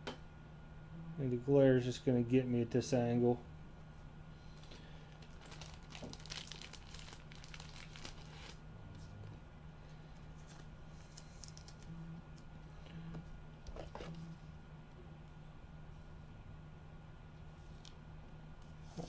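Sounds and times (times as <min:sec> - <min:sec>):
low steady hum: 0:00.0 - 0:19.0
card crinkling and rustling: 0:04.6 - 0:08.6, 0:10.2 - 0:11.9.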